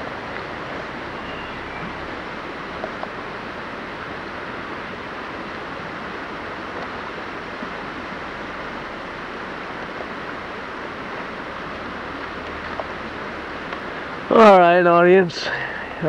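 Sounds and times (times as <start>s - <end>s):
creek water rushing: 0.0s - 16.0s
faint ticks: 11.6s - 14.1s.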